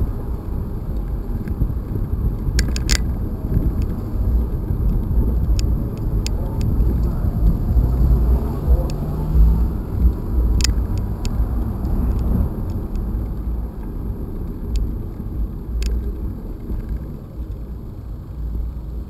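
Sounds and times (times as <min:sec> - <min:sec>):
bicycle rolling on concrete: 0:00.0 - 0:19.0
wind rumble: 0:00.0 - 0:19.0
bicycle clicks and rattles: 0:01.4 - 0:07.0.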